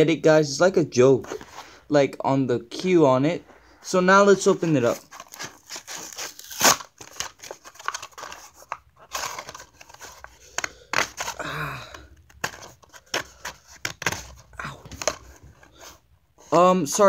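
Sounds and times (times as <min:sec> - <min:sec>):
plastic packaging crinkling and tearing: 0:04.8 - 0:15.4.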